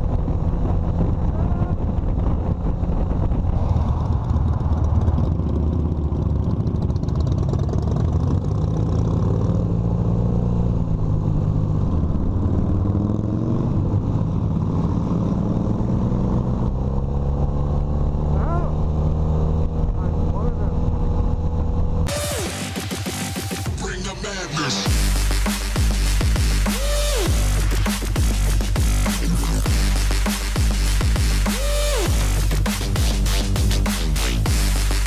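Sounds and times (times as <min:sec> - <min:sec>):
motorcycle engine running: 0:00.0 - 0:23.8, 0:24.8 - 0:35.0.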